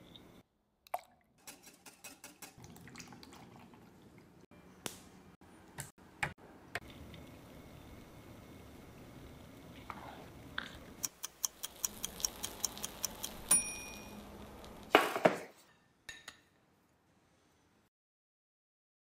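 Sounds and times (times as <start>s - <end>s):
mechanical timer clicking: 11.0s - 13.6s
timer bell ding: 13.5s - 14.2s.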